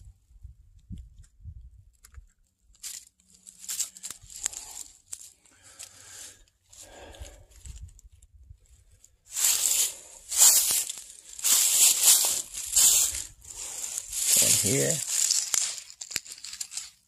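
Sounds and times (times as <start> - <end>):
footsteps through dry leaves: 2.8 - 7.2, 9.3 - 17.0.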